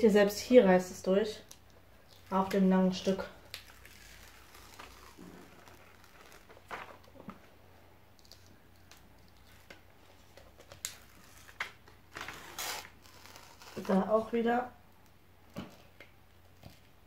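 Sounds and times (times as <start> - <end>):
paper peeling and crinkling: 1.5 - 7.4, 8.2 - 14.3
short crackles: 3.2 - 7.4.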